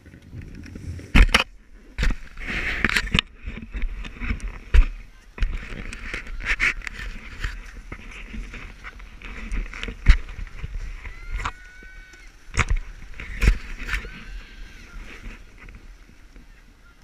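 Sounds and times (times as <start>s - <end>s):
wind rumble on microphone: 0.0s - 17.0s
camera rubbing on jacket: 0.6s - 16.2s.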